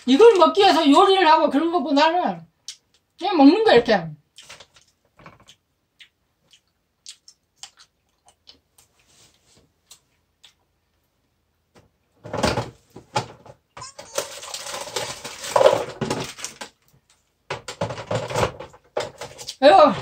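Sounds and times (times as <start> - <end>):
rice paper being chewed: 4.3 - 10.6
plastic snack wrapper crinkling: 4.4 - 5.0, 13.8 - 17.2.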